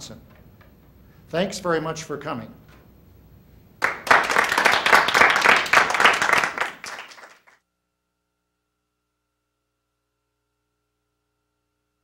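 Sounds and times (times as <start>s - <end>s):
audience applauding: 3.8s - 7.6s.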